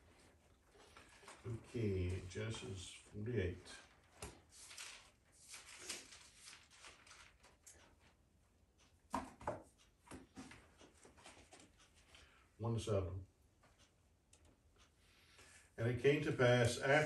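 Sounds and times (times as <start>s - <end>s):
book pages turning: 3.8s - 7.8s.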